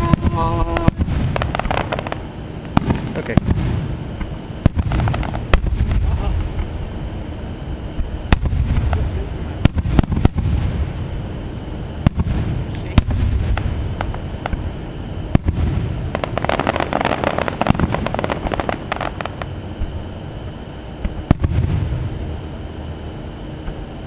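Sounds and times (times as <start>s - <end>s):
fireworks shells bursting: 0.0s - 6.8s, 15.3s - 19.5s
fireworks crackling: 0.0s - 7.3s, 8.0s - 20.0s, 21.0s - 22.1s.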